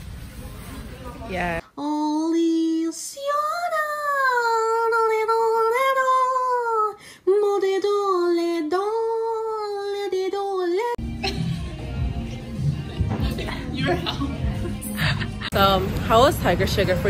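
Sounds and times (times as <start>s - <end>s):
high singing voice: 1.7s - 15.2s.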